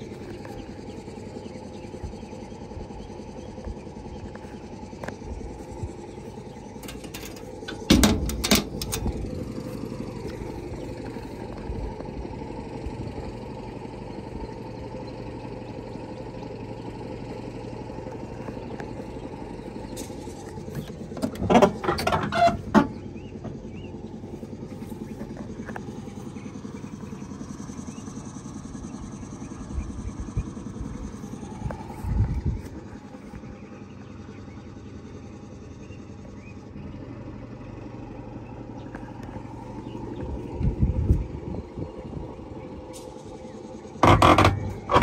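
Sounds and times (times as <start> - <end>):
truck engine idling: 0.0 - 45.0
metal clunks and rattles: 6.6 - 9.4, 19.8 - 23.8, 44.0 - 45.0.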